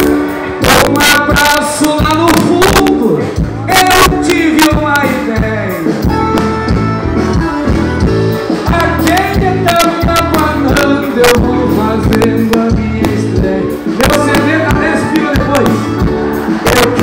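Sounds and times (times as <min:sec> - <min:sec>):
live band music: 0:00.0 - 0:17.0
person singing: 0:08.6 - 0:17.0.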